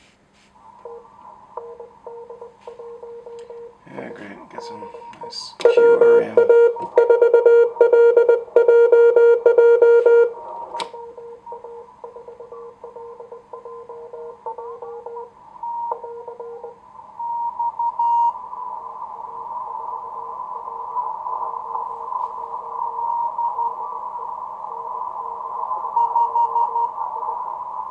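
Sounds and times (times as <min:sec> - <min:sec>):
receiver hiss: 0:00.0 - 0:27.9
higher-pitched morse code: 0:00.8 - 0:10.4, 0:11.0 - 0:16.8
morse code tones: 0:00.8 - 0:18.4, 0:26.0 - 0:26.9.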